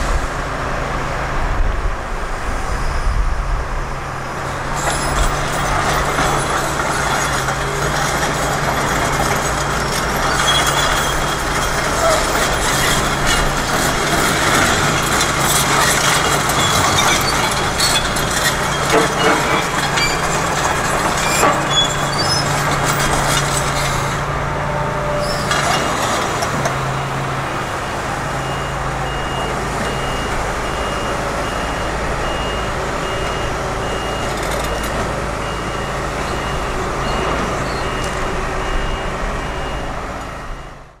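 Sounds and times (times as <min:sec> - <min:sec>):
excavator diesel engine running: 0:03.2 - 0:41.0
knocks and clatter: 0:04.8 - 0:24.2
warning alarm beeping: 0:27.8 - 0:41.0.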